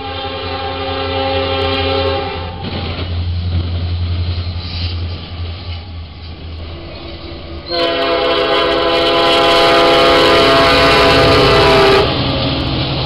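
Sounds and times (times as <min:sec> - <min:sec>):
locomotive air horn blast: 0:00.0 - 0:02.8, 0:06.8 - 0:12.2
freight train rumble and wheel noise: 0:00.0 - 0:13.0.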